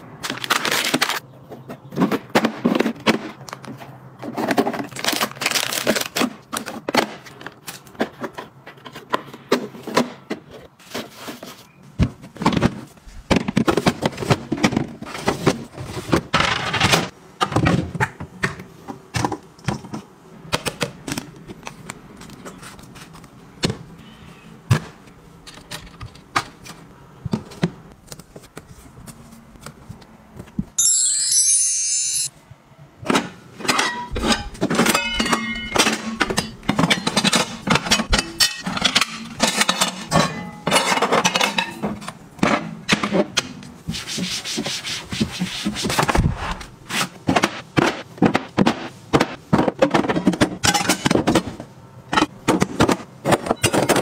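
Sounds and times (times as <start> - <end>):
plastic scraping and rustling: 0.2 - 17.0.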